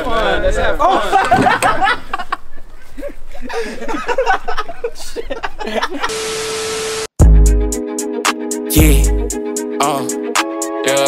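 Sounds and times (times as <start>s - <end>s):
people laughing: 0.0s - 6.1s.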